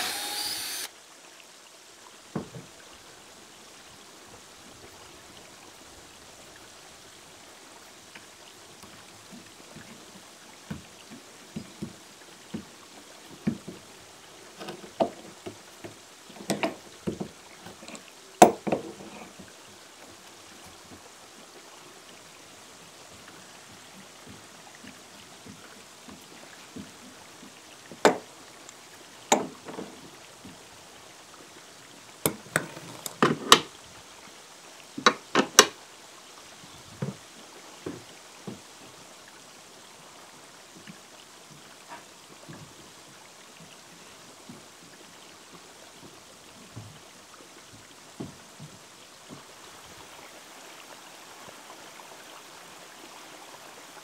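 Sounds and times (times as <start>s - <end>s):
water trickling: 0.0s - 54.0s
hand tools knocking on wood: 14.6s - 19.1s, 28.0s - 28.3s.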